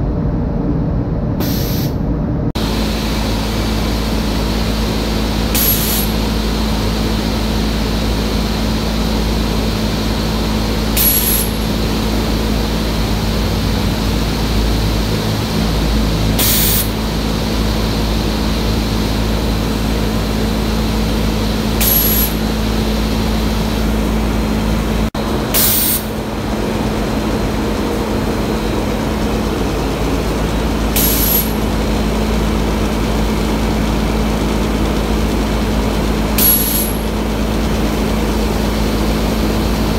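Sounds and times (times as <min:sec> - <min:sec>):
loud rush of air: 0:00.0 - 0:39.9
low machine hum: 0:00.0 - 0:39.9
compressed air hiss: 0:01.4 - 0:02.0, 0:02.6 - 0:24.1, 0:25.5 - 0:26.2, 0:30.9 - 0:31.8, 0:36.4 - 0:37.2.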